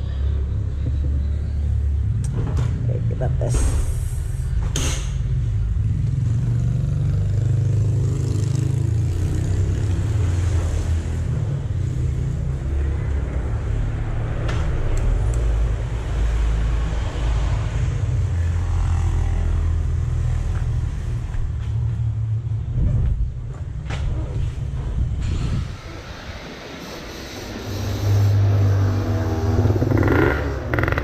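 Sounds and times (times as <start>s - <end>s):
motorcycle engine running at low revs: 28.1s - 31.0s.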